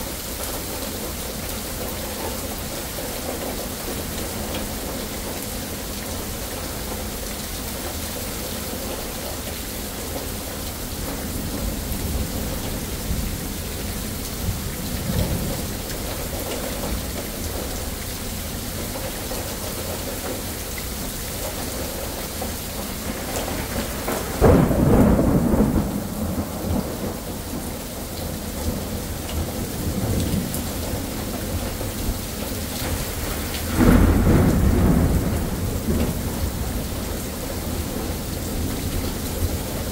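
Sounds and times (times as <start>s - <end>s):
steady rain falling: 0.0s - 39.9s
loud thunderclap: 23.0s - 27.8s, 32.8s - 39.8s
thunder rumbling: 23.0s - 39.9s.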